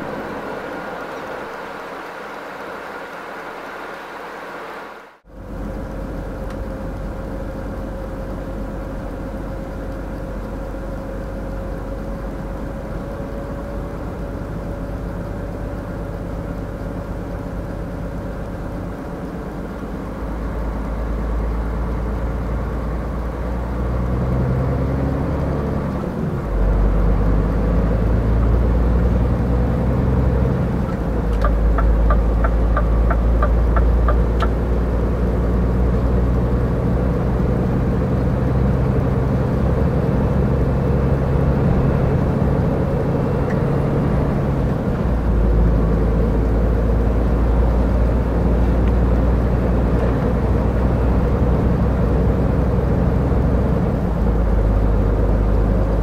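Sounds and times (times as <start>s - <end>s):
road noise: 0.0s - 56.0s
truck diesel engine drone: 0.0s - 56.0s
turn signal clicking: 30.7s - 34.7s.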